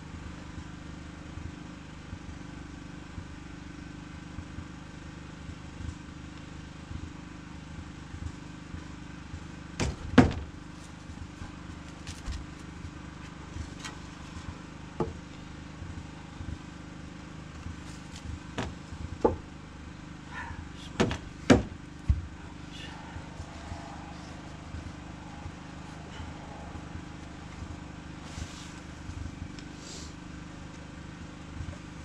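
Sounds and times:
wooden knocks and thuds: 9.8 - 10.5, 15.0 - 15.2, 18.2 - 19.4, 21.0 - 22.4.

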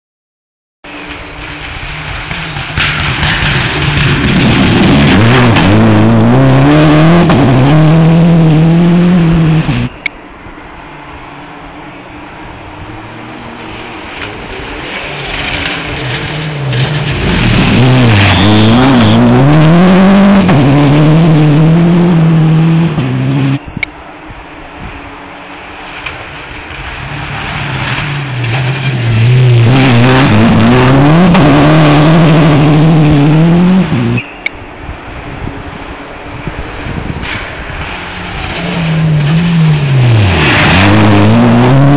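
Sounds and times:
faint outdoor background: 0.8 - 41.9
car engine at full throttle: 0.9 - 10.4, 11.0 - 41.9
tyres hissing on gravel: 37.3 - 41.1.

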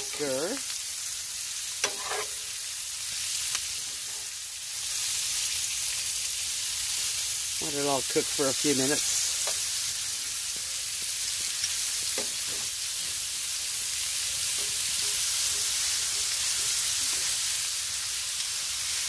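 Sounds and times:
vegetables sizzling in frying pan: 0.0 - 19.0.

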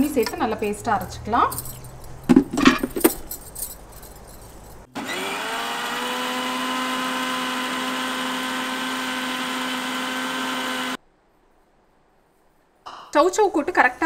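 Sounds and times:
mixer grinder motor whine: 4.9 - 11.0.

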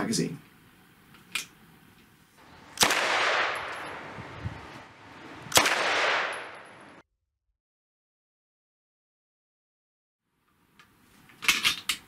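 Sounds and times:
submachine gun blasts: 2.8 - 4.1, 5.5 - 6.9.

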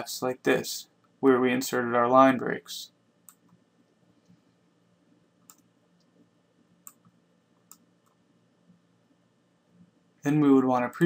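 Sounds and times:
computer mouse clicks: 3.2 - 3.6, 5.4 - 6.2, 6.8 - 8.2.

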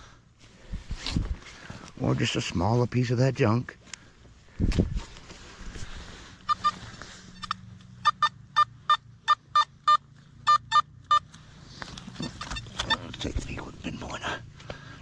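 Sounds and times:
metal detector beeps: 6.4 - 11.4, 12.1 - 13.3.

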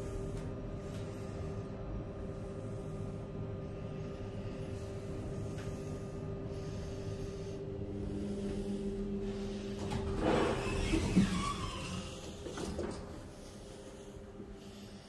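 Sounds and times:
lift motor hum: 0.0 - 15.0
lift stopping and doors opening: 9.6 - 13.6.

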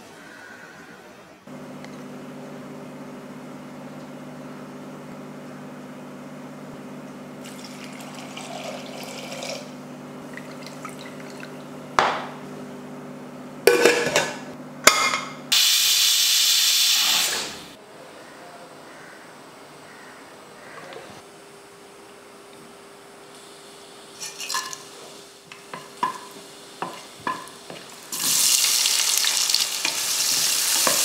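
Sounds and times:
pressure cooker steam hissing: 15.5 - 17.7, 28.1 - 31.0.

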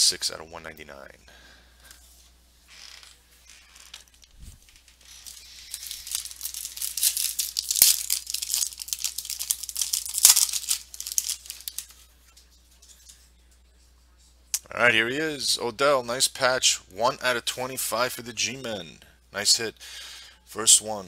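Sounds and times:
foil wrapper crinkling: 2.9 - 12.0
foil pack ripping: 5.1 - 12.0.

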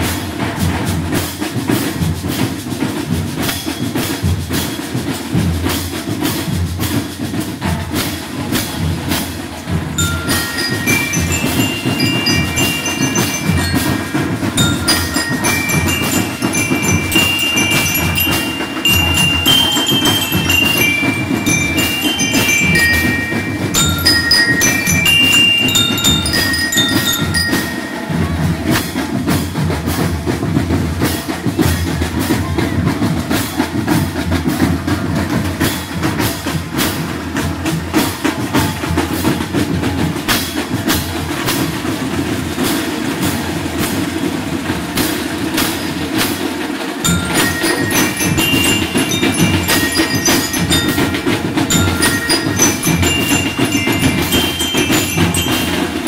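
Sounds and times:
marching drum beat: 0.0 - 56.0
bell lyres playing melody: 8.6 - 30.0, 47.0 - 56.0.

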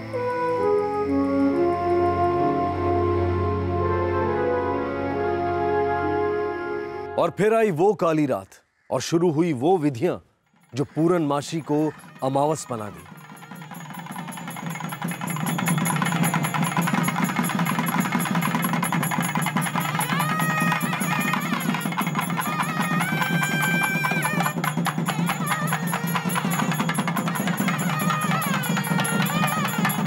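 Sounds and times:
fast drumming on barrel drums: 11.0 - 30.0.

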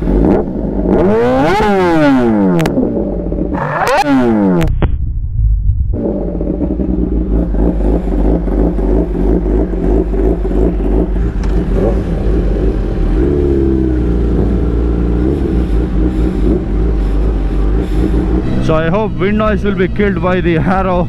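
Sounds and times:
motorcycle engine revving loudly: 0.0 - 4.7, 5.9 - 20.0.

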